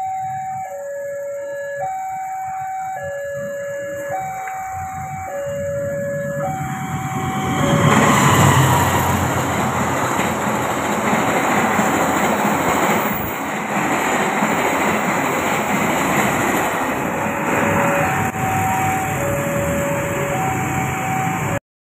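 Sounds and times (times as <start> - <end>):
level crossing two-tone alarm: 0.0 - 10.2, 15.4 - 21.6
train rushing past: 2.8 - 21.6
train wheels clacking on rails: 3.3 - 21.6.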